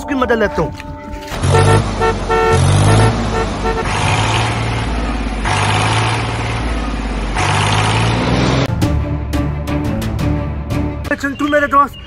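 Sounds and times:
low engine rumble: 0:00.6 - 0:08.7
vehicle horn beeping: 0:00.9 - 0:04.0.

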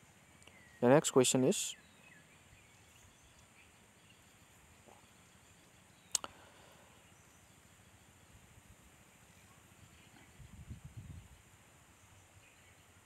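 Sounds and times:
faint background hiss: 0:00.0 - 0:13.0.

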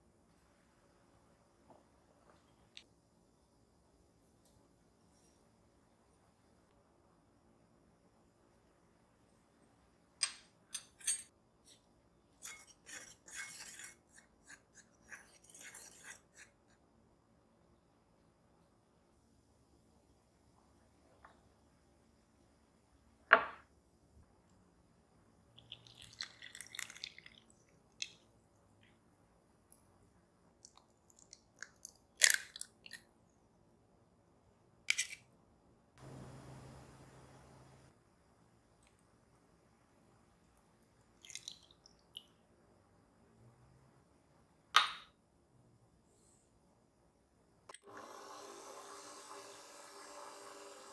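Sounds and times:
low hum and hiss: 0:33.1 - 0:47.7.

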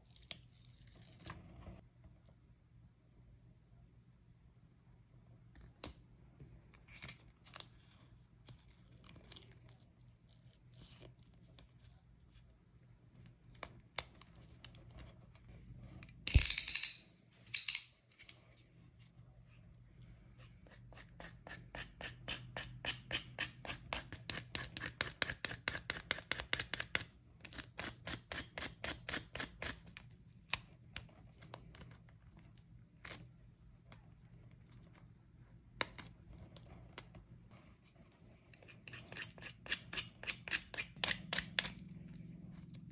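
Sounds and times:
tool scraping grip tape: 0:38.5 - 0:41.8.

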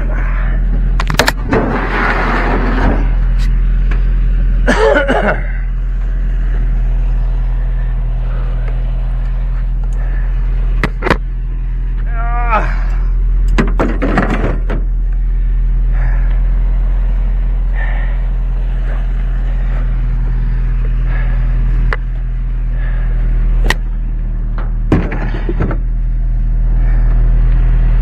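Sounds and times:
truck engine idling: 0:00.0 - 0:28.0.

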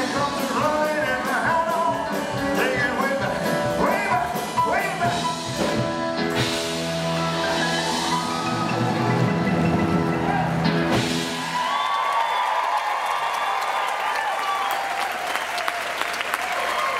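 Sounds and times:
man singing: 0:00.0 - 0:05.7
rock band playing: 0:00.0 - 0:12.0.

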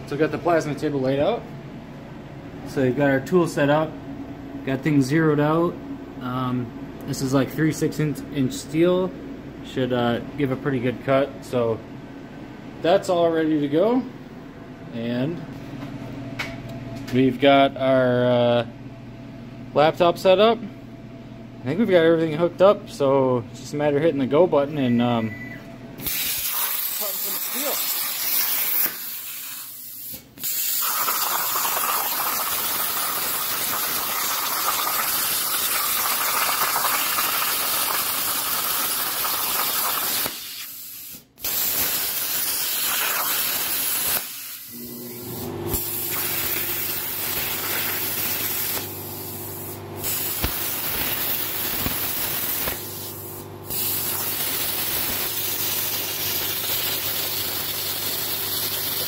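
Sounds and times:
low machine hum: 0:00.0 - 0:26.1, 0:44.7 - 0:58.0
plasma cutter hissing: 0:26.0 - 0:44.8, 0:45.4 - 0:59.0.

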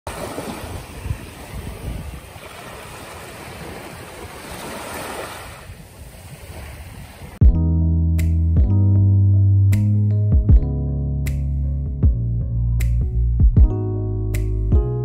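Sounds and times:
waves washing on sand: 0:00.1 - 0:07.4
wind buffeting microphone: 0:00.1 - 0:07.4.

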